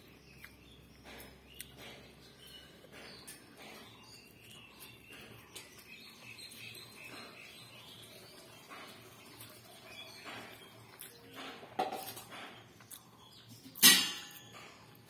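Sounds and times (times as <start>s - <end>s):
bird chirps: 0.0s - 11.5s.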